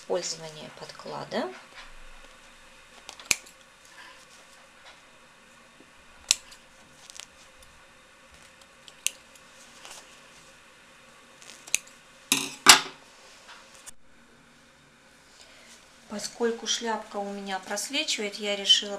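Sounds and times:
small scissors snipping: 3.0s - 3.6s, 6.2s - 7.2s, 8.5s - 9.2s, 11.5s - 12.0s.

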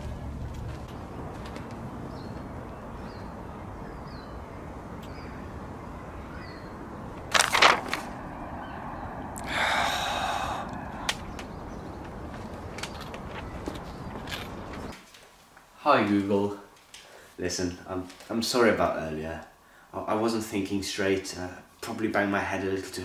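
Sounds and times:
paper map crackling: 7.2s - 8.2s, 11.1s - 17.2s.

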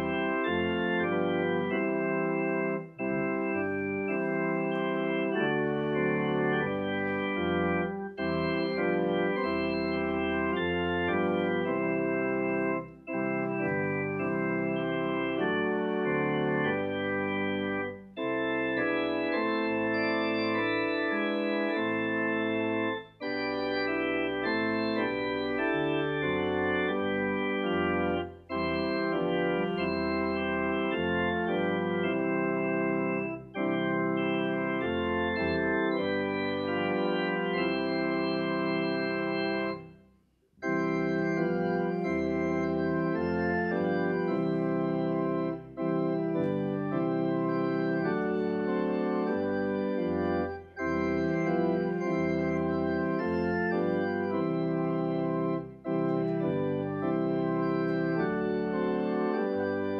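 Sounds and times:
organ playing a hymn: 0.0s - 59.9s.

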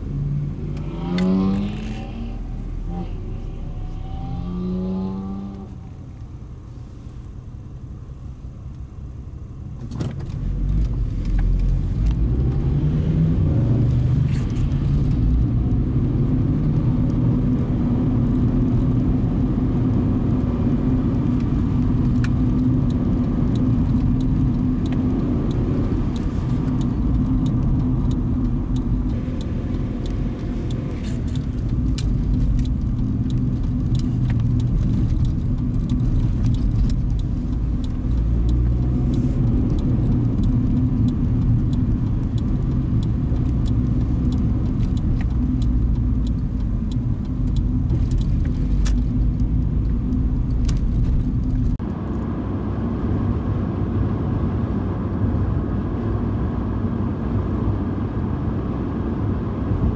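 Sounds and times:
car road and engine rumble: 0.0s - 59.9s
light rattling ticks: 21.2s - 51.8s.

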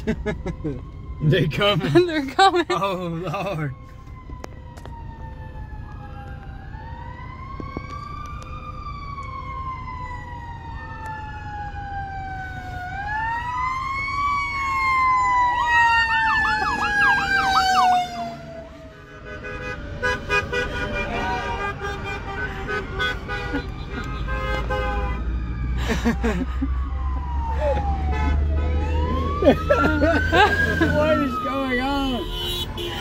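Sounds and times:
low traffic rumble: 0.0s - 33.0s
siren wailing: 0.0s - 33.0s
siren fast yelp: 11.4s - 18.7s.

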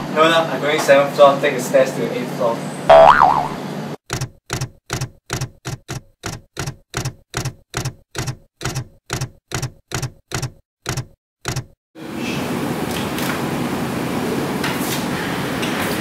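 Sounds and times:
typewriter keystroke clacks: 4.1s - 11.8s.

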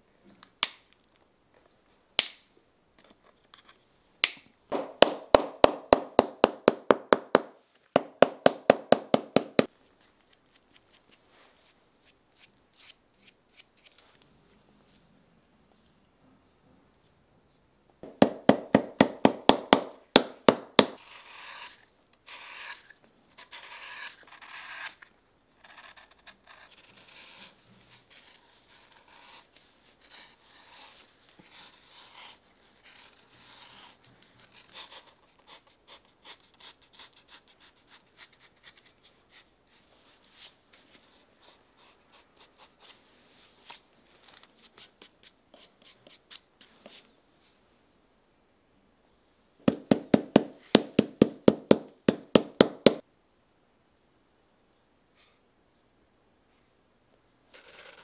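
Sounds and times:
knife paring leather: 18.5s - 39.5s
scraping strokes: 21.0s - 25.1s.

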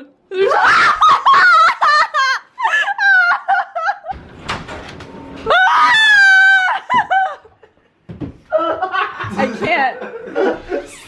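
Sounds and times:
woman shrieking laughter: 0.3s - 4.1s, 5.5s - 7.6s
woman squealing: 5.5s - 7.4s.

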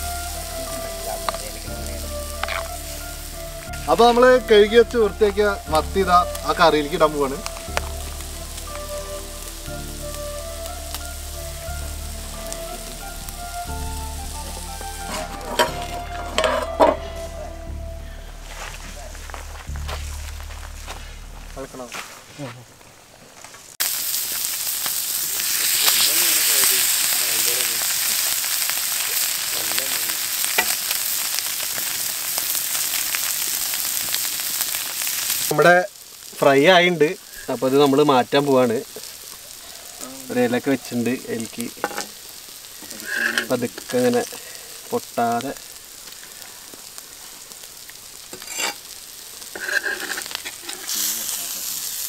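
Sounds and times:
background music: 0.0s - 21.9s
curry sizzling in a pot: 0.0s - 52.0s
metal spatula scraping pan: 15.0s - 17.3s, 43.0s - 44.0s, 48.4s - 48.9s, 49.5s - 51.1s.

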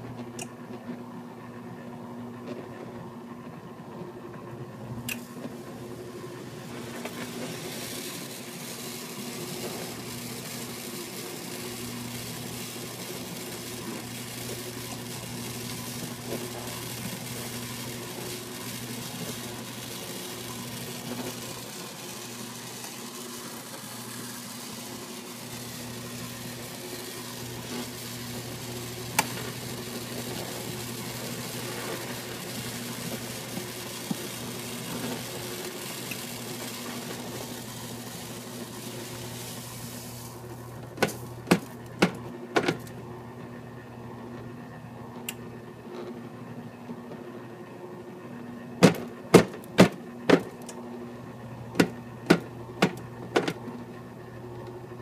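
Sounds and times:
steady motor hum: 0.0s - 55.0s
granules hissing against scoop: 5.3s - 42.0s.

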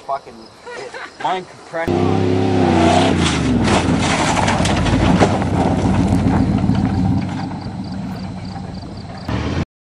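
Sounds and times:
truck engine idling: 3.5s - 9.6s.

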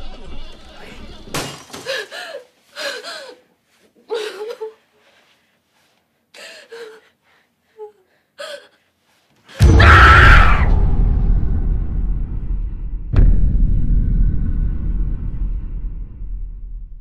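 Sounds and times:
person gasping and whimpering: 1.8s - 4.9s, 6.4s - 8.9s
very loud blast of sound: 9.6s - 16.7s.

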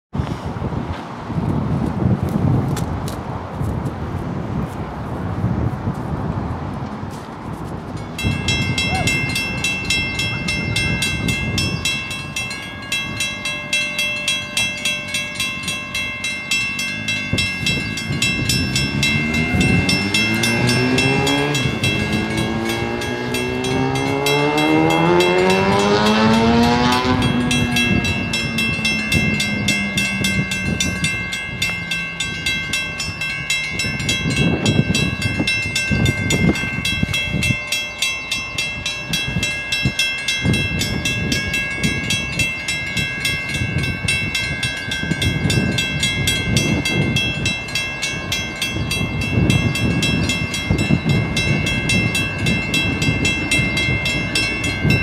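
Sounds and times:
level crossing bell ringing: 8.0s - 55.0s
engine revving: 16.8s - 32.2s.

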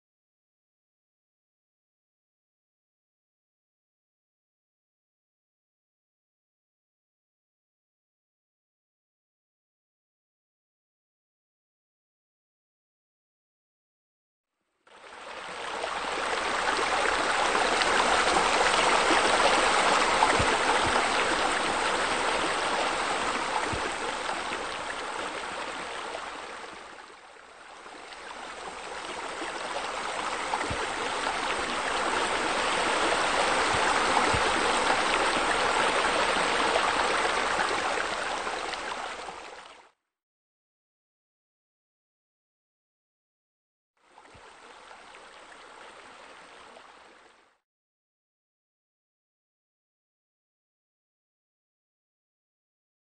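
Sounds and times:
rushing splashing water: 15.0s - 27.0s, 27.8s - 39.7s.

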